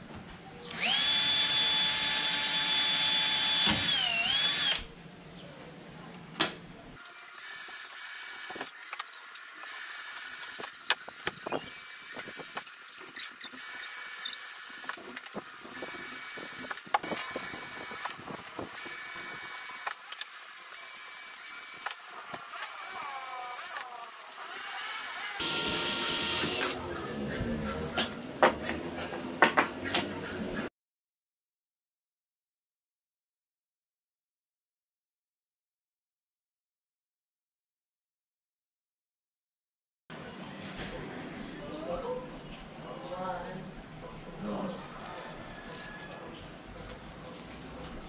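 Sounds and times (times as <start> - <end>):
cordless drill whining: 0.7 - 4.9, 7.4 - 8.7, 9.6 - 10.7, 11.5 - 12.6, 13.2 - 15.0, 15.7 - 20.0, 20.8 - 22.0, 22.6 - 26.8.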